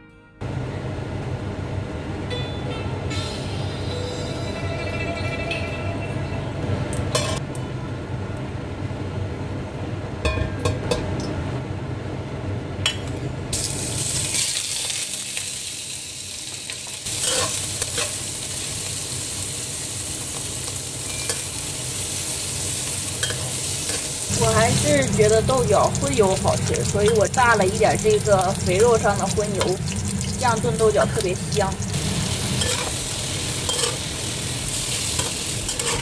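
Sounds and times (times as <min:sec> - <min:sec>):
fat sizzling in hot oil: 0:13.5 - 0:36.0
low hum: 0:24.2 - 0:36.0
metal spatula clinking against pan: 0:33.7 - 0:34.0.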